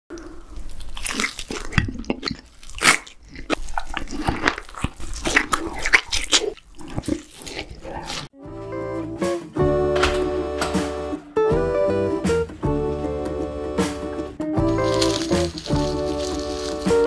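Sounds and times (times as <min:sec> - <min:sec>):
crunchy bites: 0:00.2 - 0:08.3, 0:14.6 - 0:17.0
teeth gnawing meat off bone: 0:00.2 - 0:08.3, 0:14.7 - 0:17.0
chewing with wet smacks: 0:00.5 - 0:08.3.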